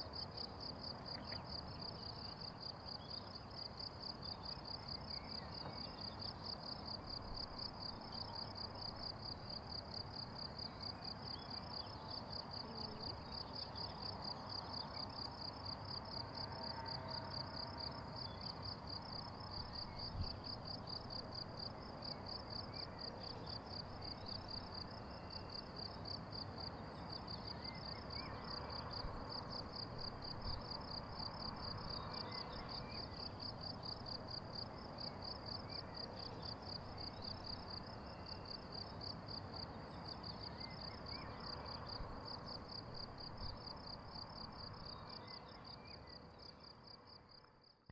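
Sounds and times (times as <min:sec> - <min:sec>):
crickets trilling: 0:01.1 - 0:47.4.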